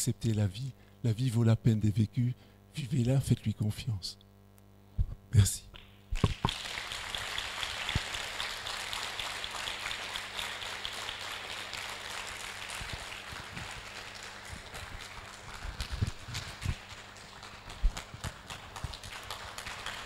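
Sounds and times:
audience applauding: 0:06.2 - 0:20.0.

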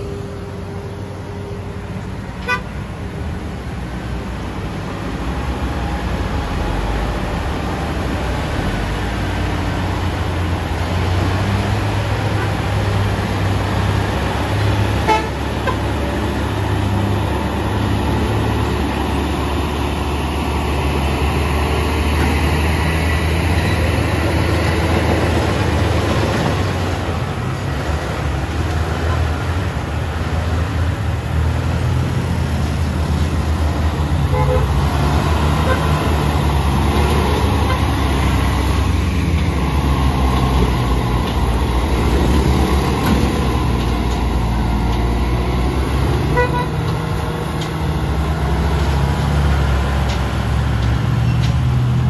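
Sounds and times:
truck diesel engines humming: 0:00.0 - 0:52.0
horn toot: 0:15.0 - 0:15.8, 0:34.3 - 0:34.8, 0:46.3 - 0:46.9.

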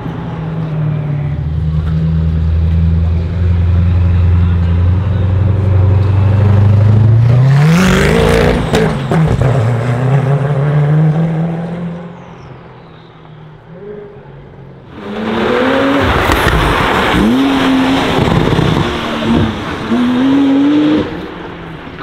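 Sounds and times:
car engine accelerating hard: 0:14.9 - 0:21.5.

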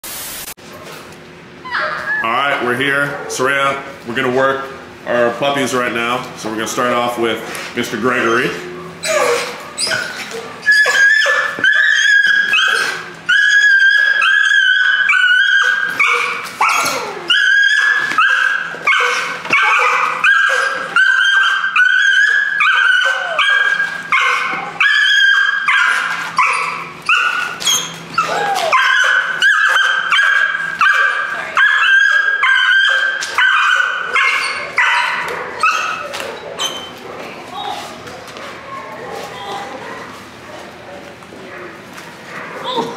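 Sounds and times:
puppy whining: 0:01.6 - 0:03.5, 0:08.1 - 0:40.4
puppy barking high-pitched yips: 0:09.1 - 0:36.9.

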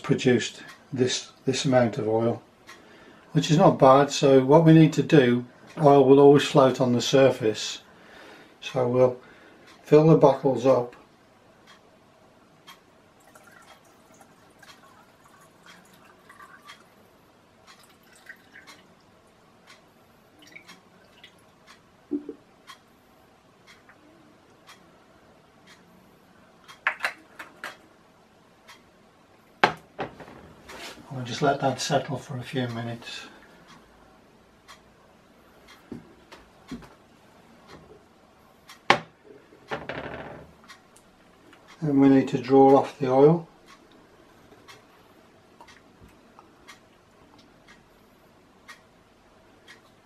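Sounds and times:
liquid trickling through a funnel: 0:13.2 - 0:17.0, 0:17.8 - 0:18.9, 0:20.4 - 0:21.5.

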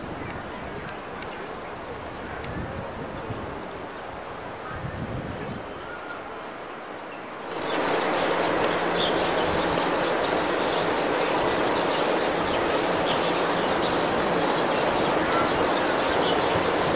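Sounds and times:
traffic rushing hiss: 0:06.3 - 0:16.9.

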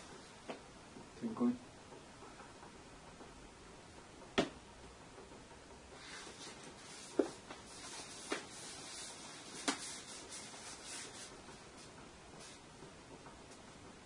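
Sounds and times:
brush swishing across paper: 0:06.0 - 0:12.7.

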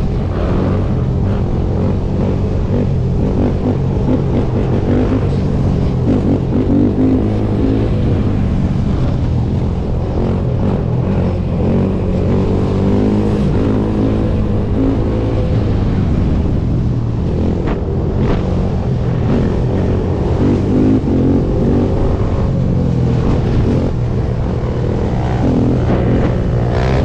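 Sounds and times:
quad engine revving: 0:00.3 - 0:08.5.

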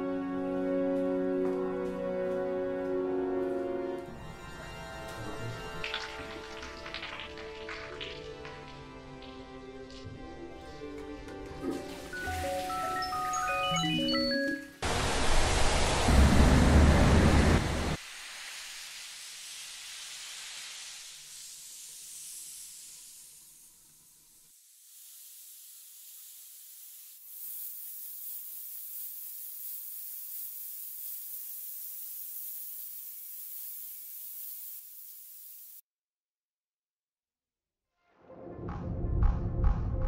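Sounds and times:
dense loud rumbling noise: 0:14.9 - 0:18.0
thin high hiss: 0:17.9 - 0:35.8
soft hiss: 0:18.0 - 0:35.8.

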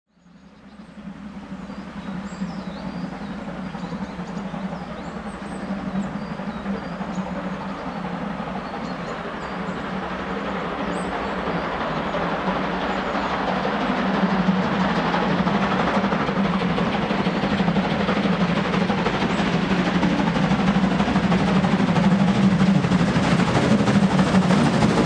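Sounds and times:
muffled steam train exhaust: 0:00.2 - 0:25.0
small birds chirping: 0:01.6 - 0:13.8.

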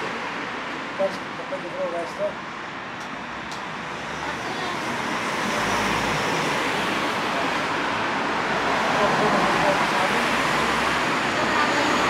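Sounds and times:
passing vehicles rushing: 0:00.0 - 0:12.0.

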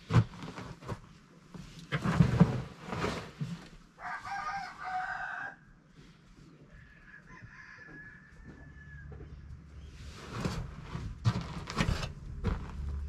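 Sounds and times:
rooster crowing: 0:04.0 - 0:05.6, 0:06.8 - 0:09.3.

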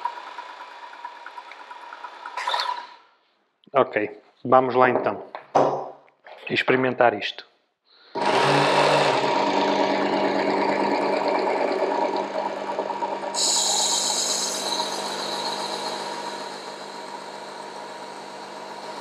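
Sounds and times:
electric sharpener motor and belt running: 0:08.2 - 0:19.0.

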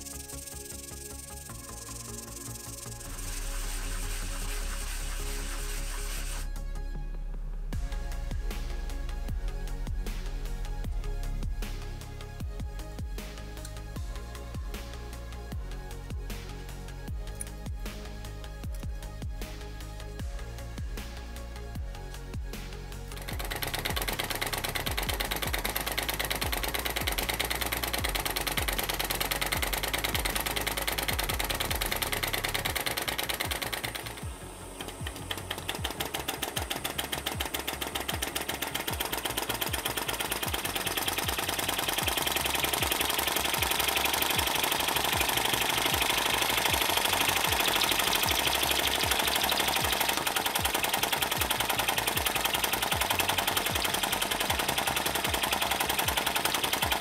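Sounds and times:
model engine clattering: 0:23.1 - 0:34.2, 0:34.8 - 0:57.0.

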